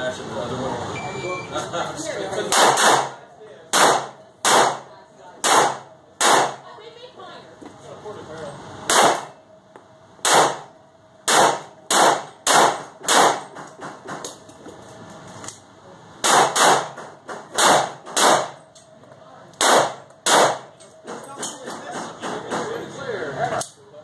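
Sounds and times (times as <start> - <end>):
pistol shots echoing indoors: 2.6 - 4.8, 5.4 - 6.6, 8.9 - 9.3, 10.2 - 13.6, 16.2 - 18.6, 19.6 - 20.8.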